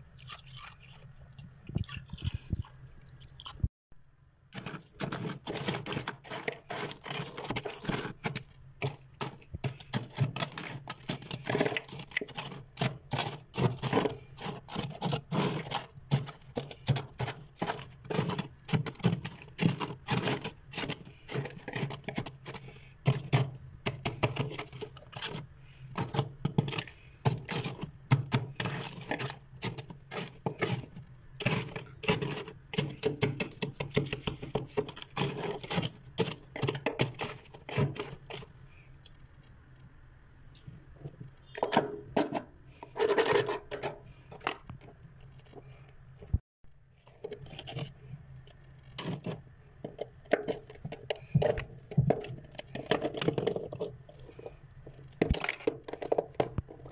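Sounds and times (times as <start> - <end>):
freezer frost crunching: 4.5 - 38.5.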